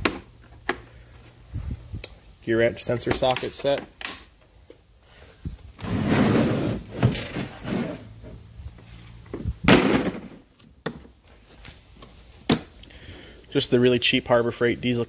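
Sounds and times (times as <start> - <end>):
plastic case scraping slide: 5.8 - 8.2
plastic case clunk: 9.7 - 11.0.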